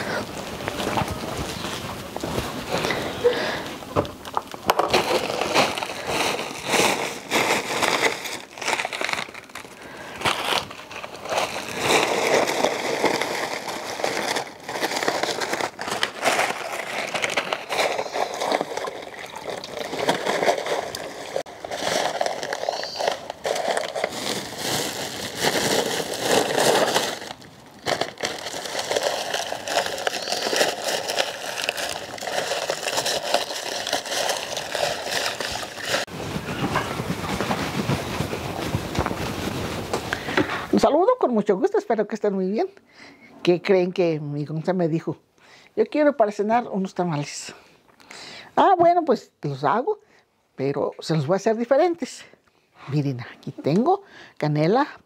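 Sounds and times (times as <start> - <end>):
corn husks crackling and rustling: 0.0 - 40.9
water sloshing: 17.8 - 21.4.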